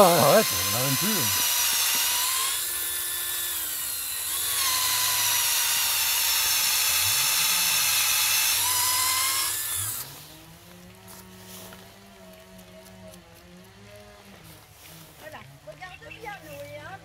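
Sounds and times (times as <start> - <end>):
cordless drill whining: 0.0 - 10.5.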